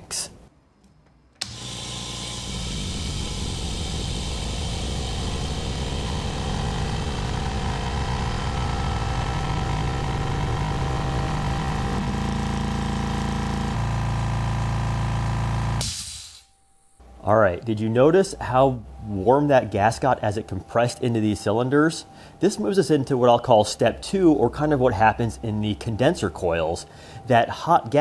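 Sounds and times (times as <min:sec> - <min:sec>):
air compressor running: 0:01.4 - 0:16.5.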